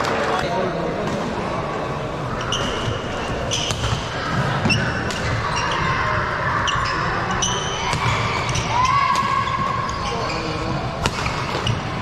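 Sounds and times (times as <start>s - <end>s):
crowd chatter: 0.0s - 12.0s
shoes squeaking on court floor: 2.3s - 12.0s.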